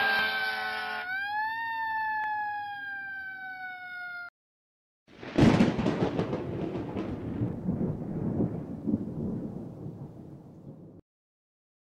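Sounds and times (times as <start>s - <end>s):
thunder-like rumble: 5.2s - 11.0s.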